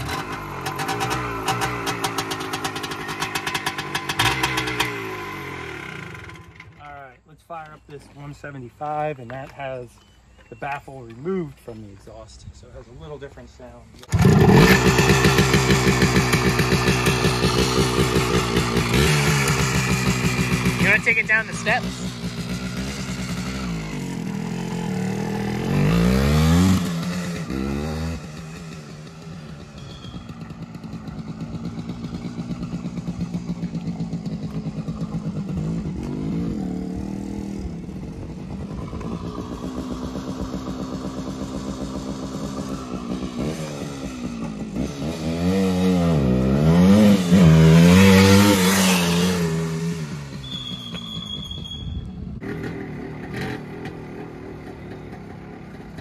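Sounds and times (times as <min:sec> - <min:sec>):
dirt bike engine revving: 0:00.0 - 0:06.8, 0:14.1 - 0:56.0.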